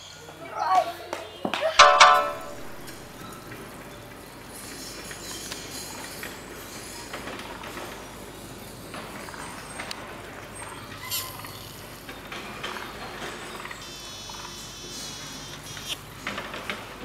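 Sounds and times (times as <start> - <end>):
insects chirping and buzzing: 13.3 - 16.1.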